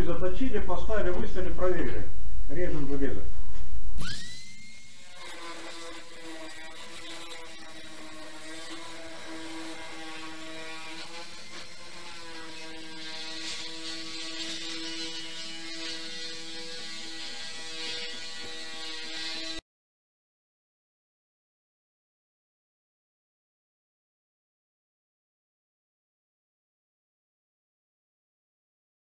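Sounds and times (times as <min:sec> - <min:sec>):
electric cutter motor hum: 0:04.0 - 0:19.6
rasping cutting hiss: 0:04.0 - 0:19.6.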